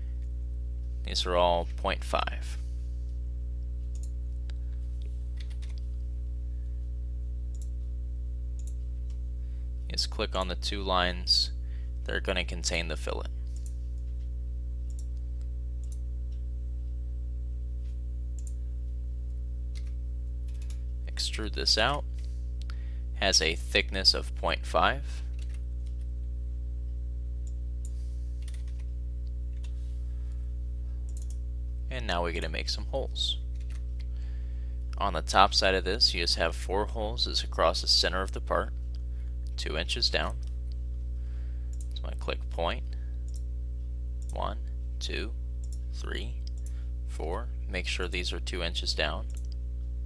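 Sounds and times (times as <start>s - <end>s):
low electrical hum: 0.0s - 50.0s
computer mouse clicking: 18.4s - 18.6s, 31.1s - 31.4s, 33.6s - 34.1s.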